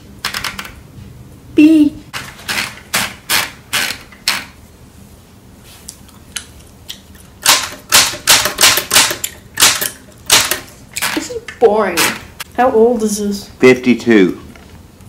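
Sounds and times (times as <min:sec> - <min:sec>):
typewriter keys clacking: 0:00.2 - 0:00.8, 0:07.4 - 0:11.4.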